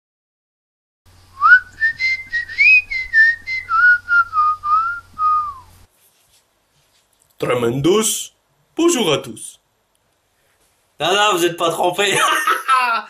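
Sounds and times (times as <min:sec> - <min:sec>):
person whistling a tune: 0:01.4 - 0:05.7.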